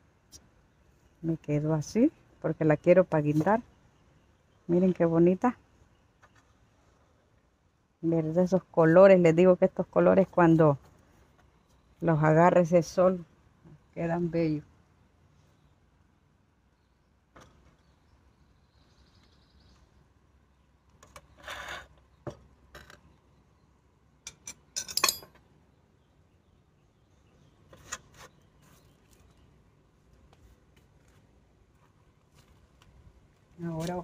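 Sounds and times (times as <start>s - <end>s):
flowerpots and tools clinking: 24.3s - 25.4s.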